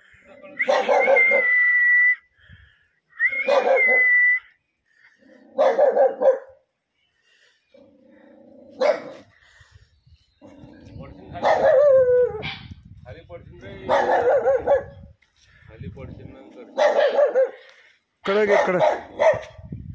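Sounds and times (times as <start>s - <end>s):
dog barking in drawn-out calls: 0.6s - 1.5s, 3.5s - 4.0s, 5.5s - 6.6s, 8.8s - 9.3s, 11.4s - 12.0s, 13.9s - 15.0s, 16.8s - 17.6s, 18.3s - 19.6s
high whistle-like tone: 1.0s - 2.3s, 3.2s - 4.6s.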